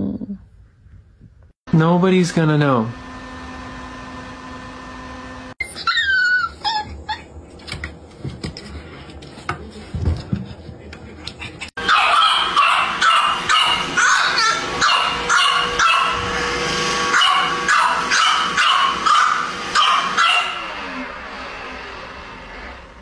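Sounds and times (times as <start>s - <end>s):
puppy barking: 11.8s - 16.3s, 17.0s - 20.7s.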